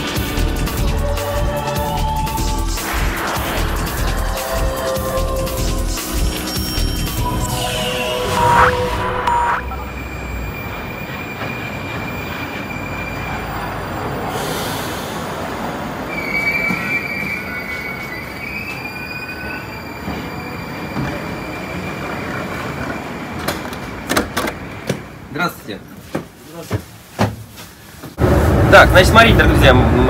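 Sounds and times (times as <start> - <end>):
train rumbling: 2.5 - 25.3, 27.7 - 30.0
wheels squealing: 6.0 - 14.5, 16.0 - 24.7.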